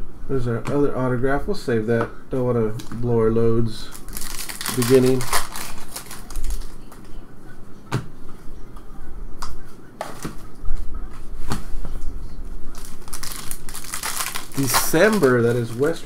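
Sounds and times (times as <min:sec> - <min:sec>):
trading cards being handled: 0:03.9 - 0:07.1, 0:12.7 - 0:16.0.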